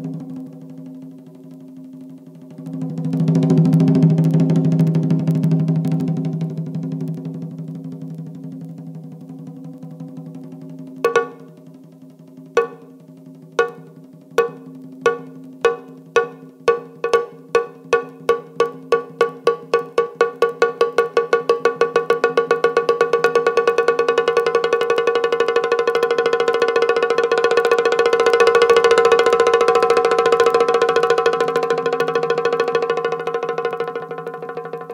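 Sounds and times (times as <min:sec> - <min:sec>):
single note struck repeatedly: 0:11.0 - 0:11.6, 0:12.6 - 0:13.0, 0:13.6 - 0:20.1.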